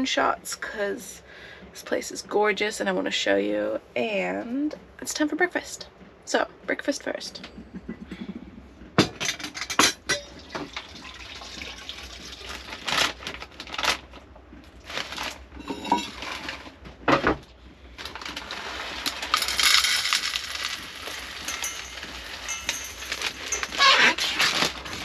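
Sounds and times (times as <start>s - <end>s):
dishes and utensils clattering: 9.0s - 10.8s, 15.6s - 16.6s, 19.0s - 25.0s.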